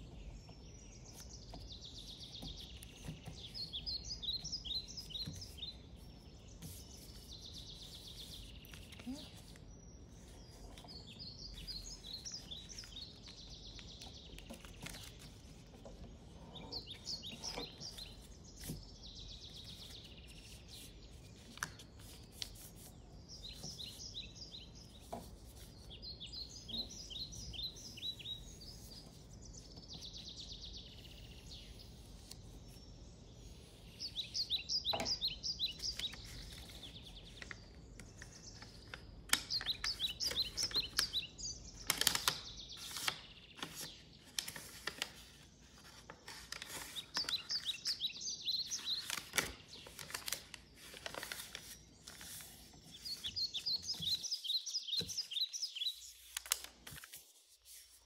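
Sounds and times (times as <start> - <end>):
paper crinkling and rustling: 2.6 - 24.0, 35.6 - 41.2, 41.8 - 58.0
high bird chirps: 46.9 - 50.0, 52.9 - 56.4.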